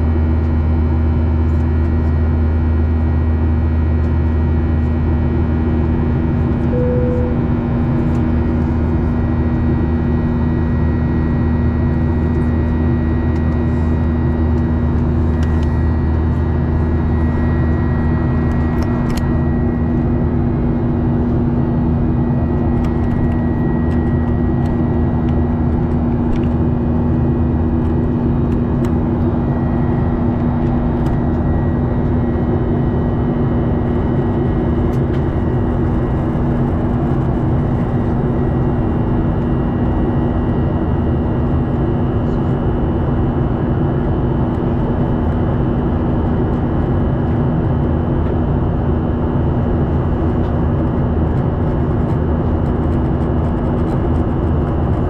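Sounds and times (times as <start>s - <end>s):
jet engine and airflow drone: 0.0s - 55.0s
cabin hum: 6.2s - 42.4s
short tone: 6.7s - 8.0s.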